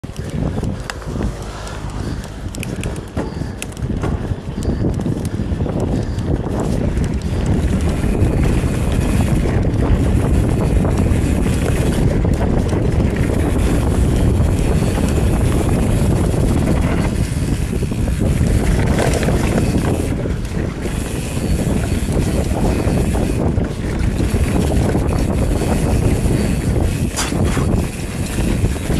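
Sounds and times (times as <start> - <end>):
bike chatter: 0.0 - 28.9
bike tyres rolling on dirt: 0.0 - 28.9
wind on microphone: 0.0 - 28.9.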